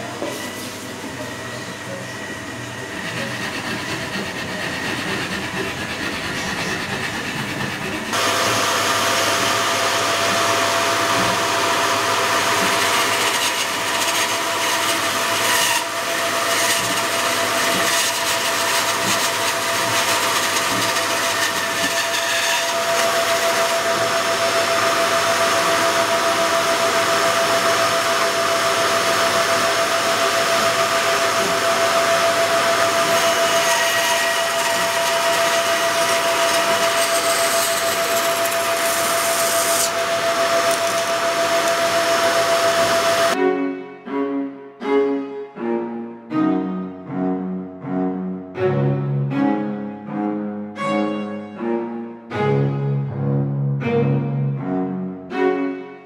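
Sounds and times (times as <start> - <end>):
quiet workshop noise: 0.0 - 43.4
bandsaw cutting wood: 2.2 - 43.4.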